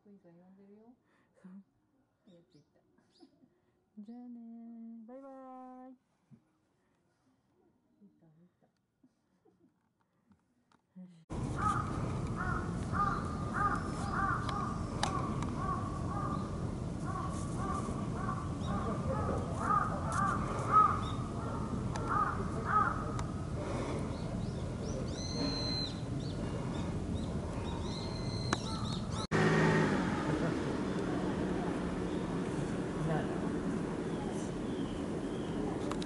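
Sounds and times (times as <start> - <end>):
crows cawing: 11.5 - 23.4.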